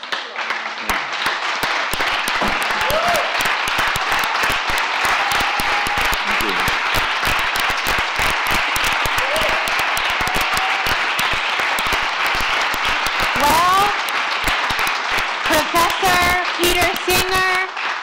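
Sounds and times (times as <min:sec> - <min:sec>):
audience applauding: 0:00.0 - 0:18.0
short cheers: 0:02.6 - 0:06.8, 0:09.0 - 0:11.4.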